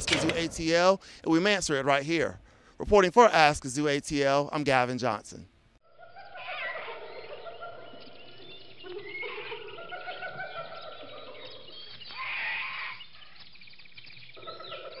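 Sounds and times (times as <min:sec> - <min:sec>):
animal calls: 0:05.9 - 0:13.3, 0:14.4 - 0:15.0
bird chirps: 0:06.0 - 0:15.0.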